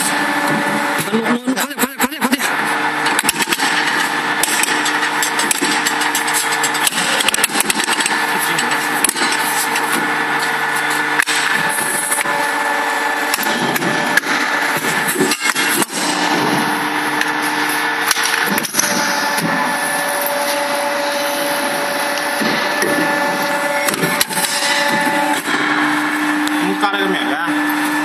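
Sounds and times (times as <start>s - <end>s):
hydraulic pump hum: 0.0s - 28.0s
sharp metal knocks: 3.0s - 10.1s, 13.3s - 16.6s, 23.8s - 25.8s.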